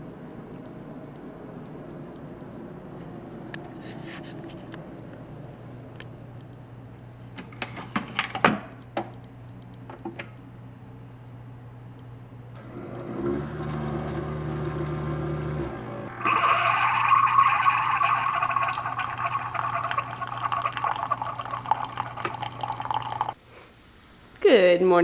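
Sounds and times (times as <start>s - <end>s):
coffee maker humming: 12.6s - 23.4s
coffee streaming into mug: 16.2s - 23.4s.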